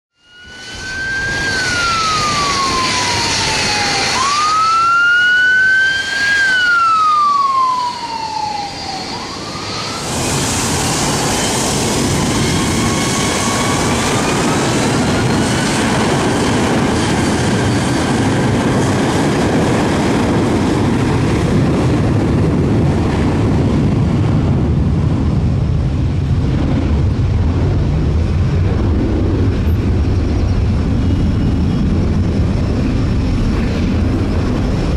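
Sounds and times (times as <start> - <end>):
ambulance siren wailing: 0.3 - 10.5
jet engine blast: 0.3 - 34.9.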